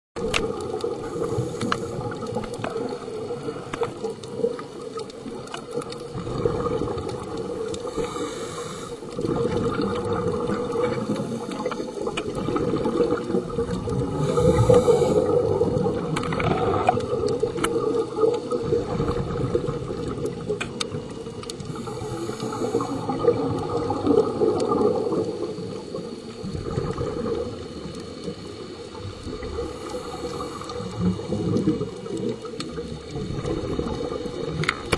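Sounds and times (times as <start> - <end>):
exhaled bubbles gushing: 0.2 - 34.9
underwater rush of water: 0.2 - 34.9
regulator breathing: 7.8 - 9.2, 14.1 - 15.5, 21.7 - 23.2.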